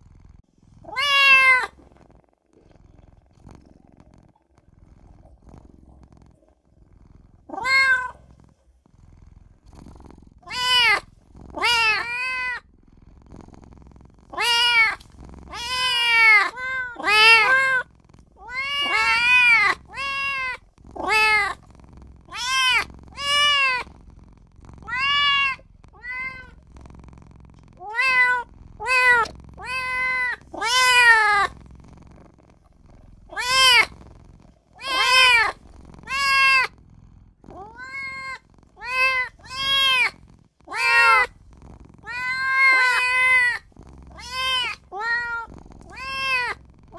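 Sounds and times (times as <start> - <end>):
kitten meowing: 0.9 - 1.8, 7.5 - 8.2, 10.4 - 11.0, 11.6 - 12.6, 14.3 - 17.8, 18.4 - 21.6, 22.3 - 23.9, 24.8 - 26.6, 27.8 - 31.5, 33.3 - 33.9, 34.8 - 36.7, 37.5 - 41.3, 42.0 - 46.6.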